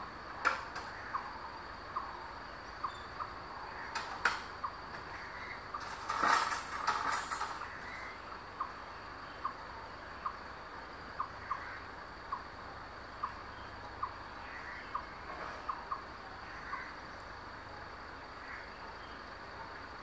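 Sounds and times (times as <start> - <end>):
high insect tone: 0.0 - 20.0.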